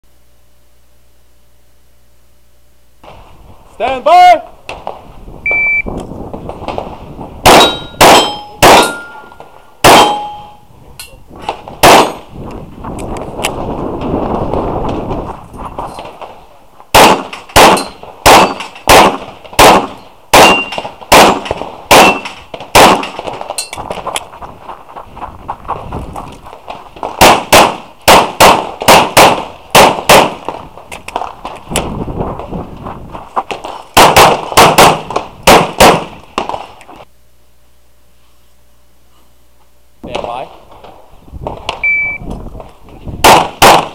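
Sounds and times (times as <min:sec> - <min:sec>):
pistol shots: 0:06.7 - 0:10.6, 0:11.5 - 0:12.3, 0:16.9 - 0:24.0, 0:26.6 - 0:31.6, 0:33.5 - 0:36.8, 0:43.2 - 0:43.9
steel target clanging and ringing: 0:07.5 - 0:10.6, 0:17.7 - 0:18.8.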